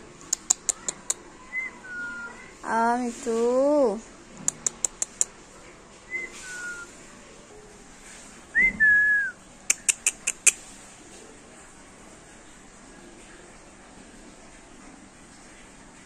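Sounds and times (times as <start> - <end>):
parakeet clicking: 0.3 - 1.2, 4.4 - 5.3, 9.7 - 10.6.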